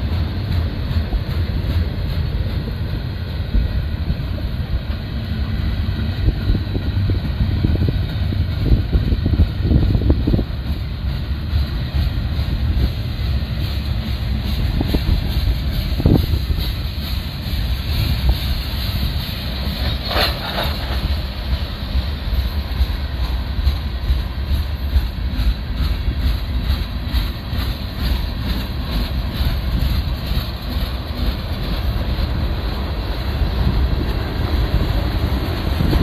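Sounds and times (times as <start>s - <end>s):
wind buffeting microphone: 0.0s - 20.0s, 20.8s - 36.0s
train wheels rumbling on rails: 0.0s - 36.0s.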